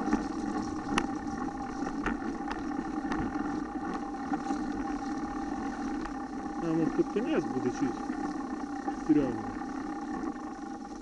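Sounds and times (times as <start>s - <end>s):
bike clicks and knocks over bumps: 0.0s - 5.0s
bike riding rumble: 0.0s - 11.0s.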